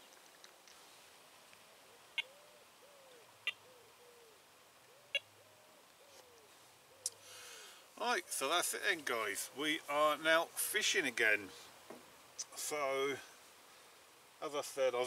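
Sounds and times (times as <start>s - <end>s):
bird cooing: 1.7s - 8.3s.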